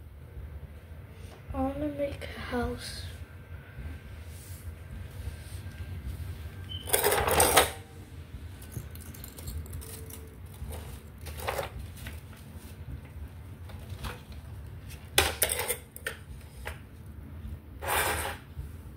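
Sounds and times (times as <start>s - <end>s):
hard toys clattering and scraping: 6.7s - 7.9s, 8.6s - 12.4s, 13.7s - 16.8s, 17.8s - 18.5s.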